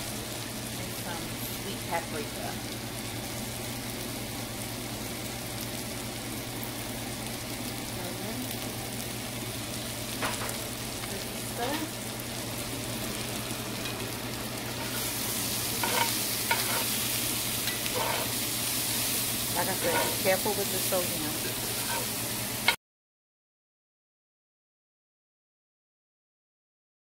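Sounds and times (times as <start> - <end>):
food sizzling in skillet: 0.0 - 22.8
spatula stirring pan: 13.0 - 22.8.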